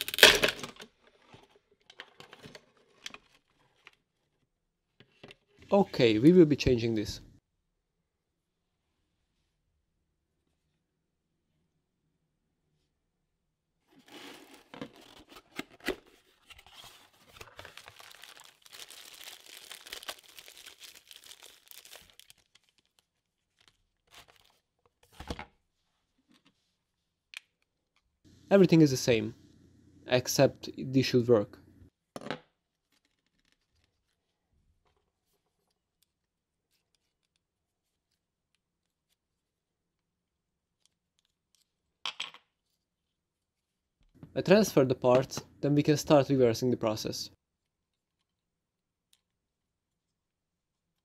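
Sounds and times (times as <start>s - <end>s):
cardboard packaging rustling: 13.9s - 25.3s
plastic wrapping crinkling: 16.7s - 24.6s.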